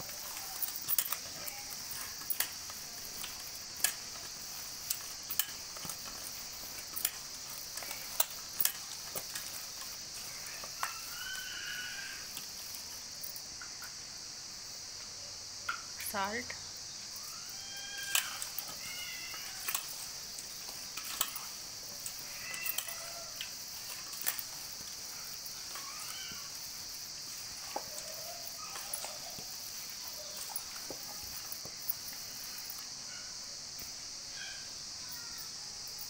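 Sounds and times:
hands mixing chicken in metal bowl: 0.0s - 12.9s, 17.6s - 31.5s
crickets chirring: 0.0s - 36.0s.

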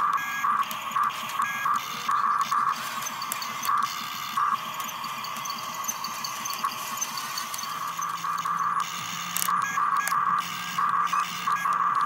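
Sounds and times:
small electric gear motors whirring: 0.0s - 12.0s.

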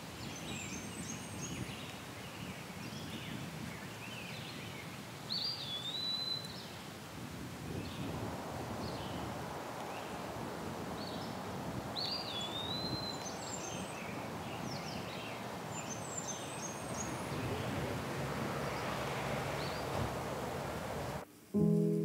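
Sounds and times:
small birds chirping: 11.0s - 21.2s.

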